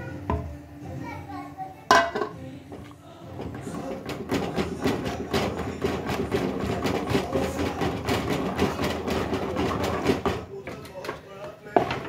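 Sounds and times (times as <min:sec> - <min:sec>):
wooden spatula scraping metal pot: 0:03.2 - 0:10.4.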